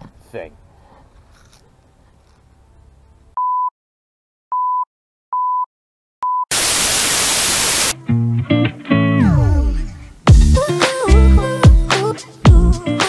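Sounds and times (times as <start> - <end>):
tv static hiss: 6.5 - 8.0.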